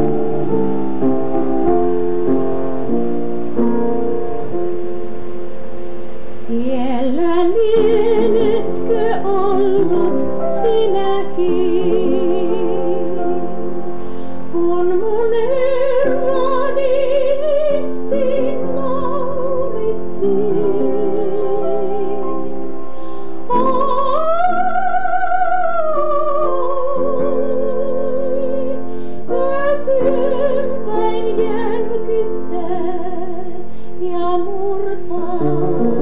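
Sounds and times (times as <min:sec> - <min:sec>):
piano chords: 0:00.0 - 0:36.0
woman singing with vibrato: 0:06.3 - 0:22.8, 0:23.4 - 0:36.0.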